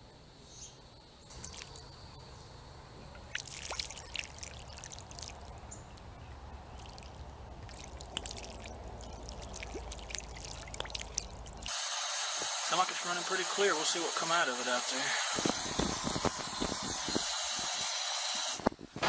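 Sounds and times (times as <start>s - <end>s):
water pouring from drain pipe: 1.3s - 1.8s, 3.2s - 11.8s.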